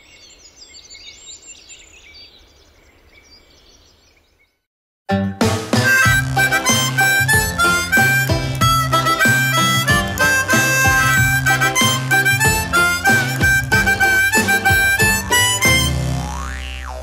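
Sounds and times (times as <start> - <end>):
bright instrumental theme music: 5.1 - 17.0.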